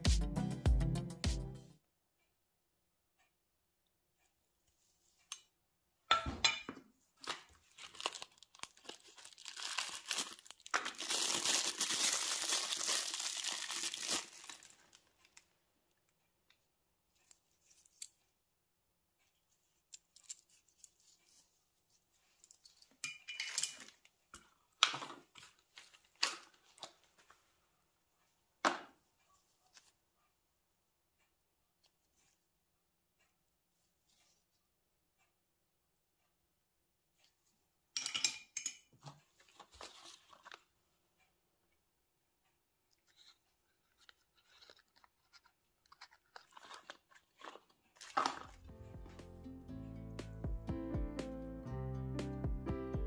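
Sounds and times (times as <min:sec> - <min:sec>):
packaging crinkling and tearing: 0:07.2 - 0:15.4, 0:43.1 - 0:48.6.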